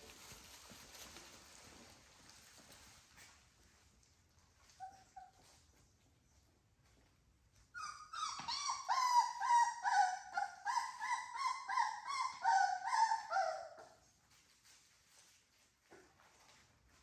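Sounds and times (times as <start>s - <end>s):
puppy whining: 4.6s - 5.8s, 7.7s - 14.2s.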